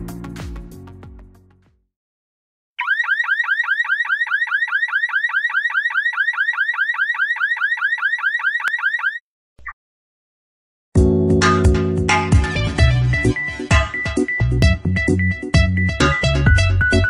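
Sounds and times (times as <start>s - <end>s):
rapid rising electronic alarm chirps: 2.8s - 9.2s.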